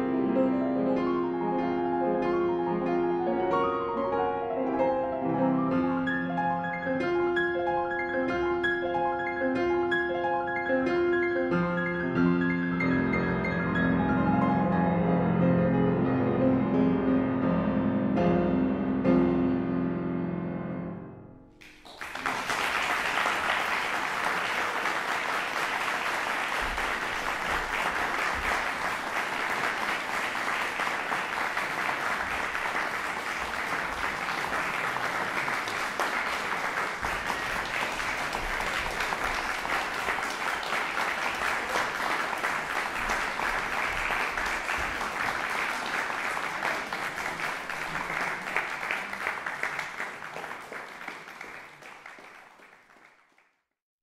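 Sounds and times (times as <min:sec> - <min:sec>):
grand piano notes: 0:00.0 - 0:21.6
audience applause: 0:21.6 - 0:53.6.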